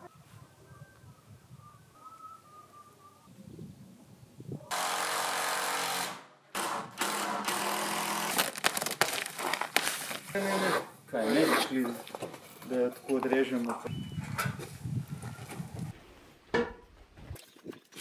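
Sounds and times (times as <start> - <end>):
power tool running: 4.7 - 8.5.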